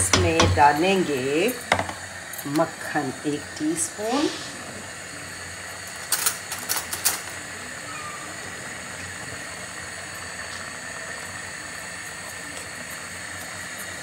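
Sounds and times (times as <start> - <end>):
steady hiss: 0.0 - 14.0
metal cutlery clinking: 5.9 - 7.3.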